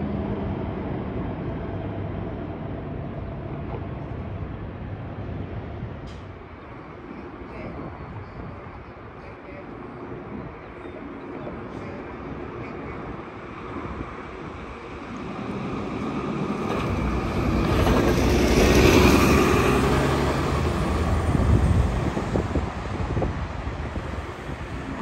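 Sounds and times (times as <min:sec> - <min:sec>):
bus driving past: 0:11.6 - 0:25.0.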